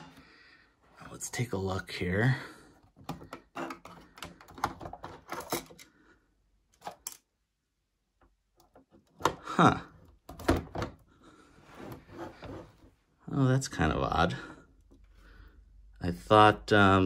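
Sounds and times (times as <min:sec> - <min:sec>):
plastic clicking and rattling: 0:03.0 - 0:05.9.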